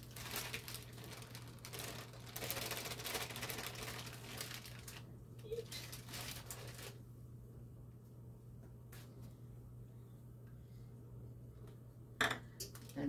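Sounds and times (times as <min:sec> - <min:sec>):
baking mix crinkling and scraping: 0:00.0 - 0:07.0
low steady hum: 0:00.0 - 0:13.0.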